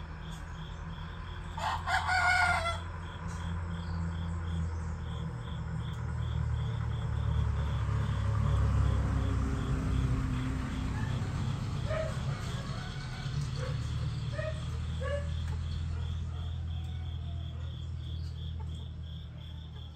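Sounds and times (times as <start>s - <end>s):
insect chirping: 0.0s - 19.9s
rooster crowing: 1.5s - 3.5s, 11.8s - 15.2s, 16.0s - 17.9s.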